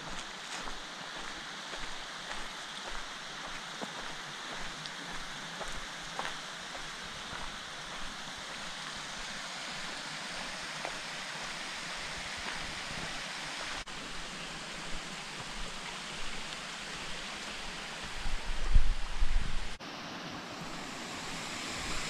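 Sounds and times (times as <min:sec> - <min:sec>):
creek water rushing: 0:00.0 - 0:22.0
wind buffeting microphone: 0:18.1 - 0:19.8.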